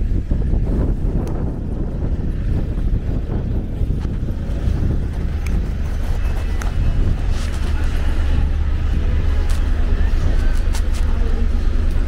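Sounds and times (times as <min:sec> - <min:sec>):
buses passing: 0:00.0 - 0:12.0
city traffic rumble: 0:00.0 - 0:12.0
wind buffeting microphone: 0:00.0 - 0:12.0.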